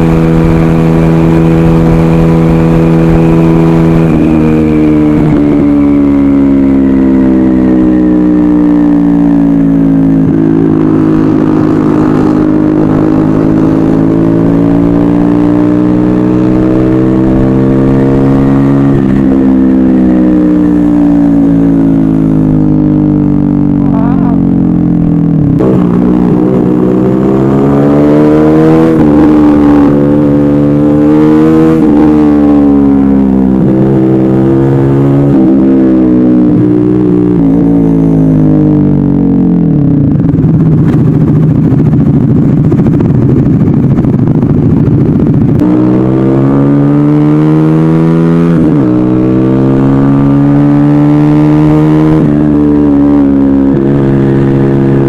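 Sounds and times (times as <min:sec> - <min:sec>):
motorcycle engine decelerating: 0:00.0 - 0:55.0
wind rumble on microphone: 0:09.6 - 0:50.6.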